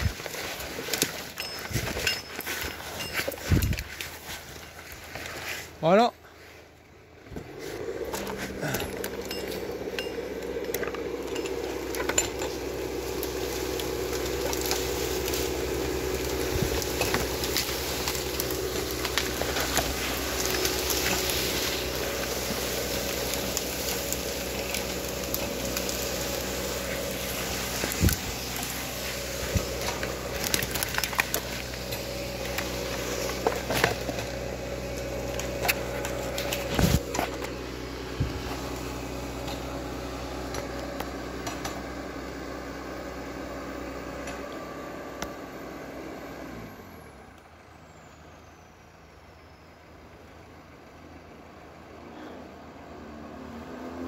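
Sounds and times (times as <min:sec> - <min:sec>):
brush crackling: 0:00.0 - 0:41.4
chainsaw idling: 0:00.0 - 0:47.4.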